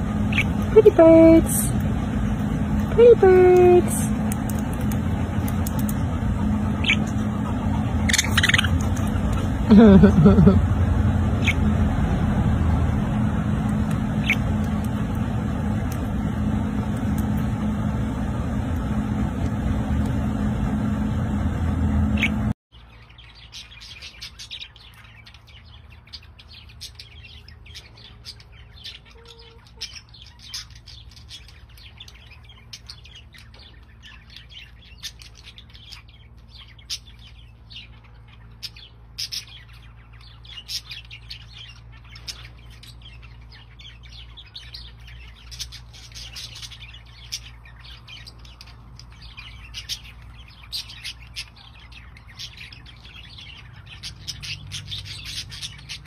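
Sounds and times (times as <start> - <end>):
budgerigars chirping: 0.0 - 1.8, 4.8 - 9.7, 11.3 - 11.8, 13.7 - 15.2, 22.2 - 56.0
steady low hum: 0.0 - 56.0.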